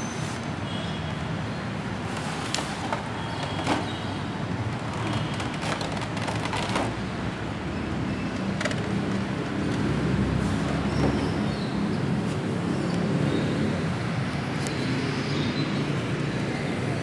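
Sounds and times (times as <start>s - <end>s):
plastic packaging clicks and crinkles: 4.8s - 7.0s.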